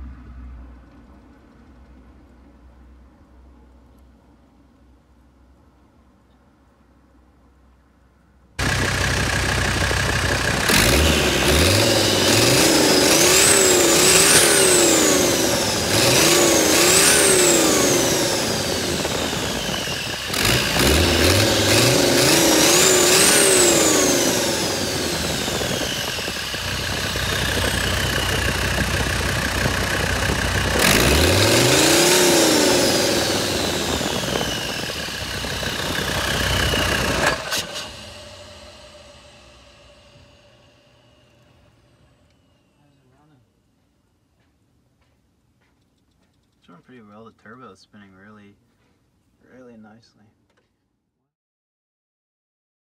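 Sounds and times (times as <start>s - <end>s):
diesel engine revving: 8.6s - 41.5s
turbo whine: 8.6s - 43.3s.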